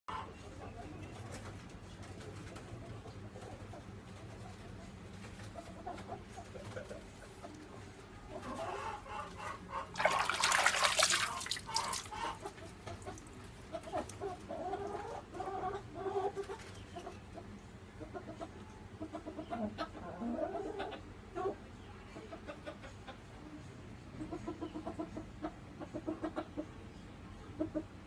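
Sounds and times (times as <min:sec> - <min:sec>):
chickens clucking: 0:00.1 - 0:28.0
fish splashing in water: 0:09.9 - 0:14.1.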